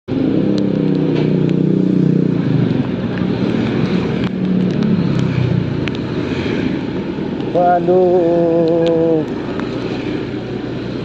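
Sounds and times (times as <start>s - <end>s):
rain hissing on wet road: 0.6s - 11.0s.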